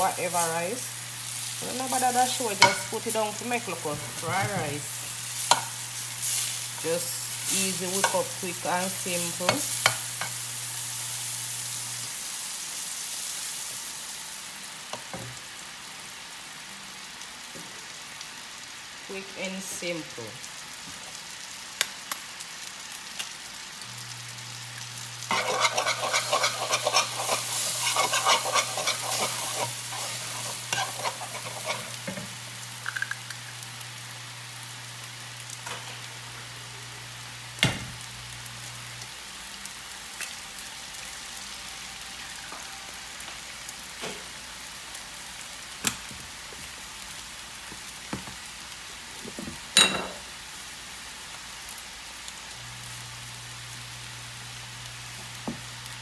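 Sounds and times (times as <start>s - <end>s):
eggs sizzling in frying pan: 0.0s - 56.0s
metal spoon stirring: 25.3s - 32.2s.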